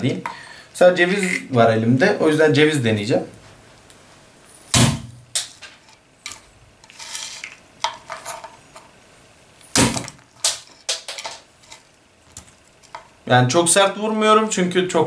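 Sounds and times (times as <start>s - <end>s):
gauntlet slamming on walnut: 4.7s - 5.2s, 9.7s - 10.2s.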